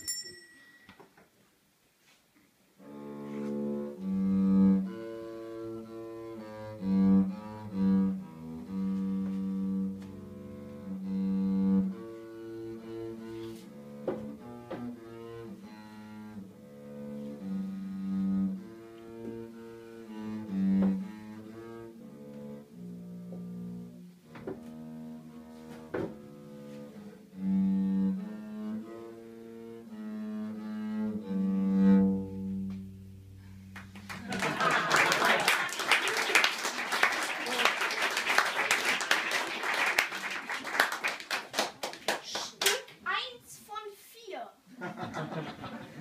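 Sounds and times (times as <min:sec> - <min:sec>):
bowed double bass melody: 0:02.8 - 0:34.1.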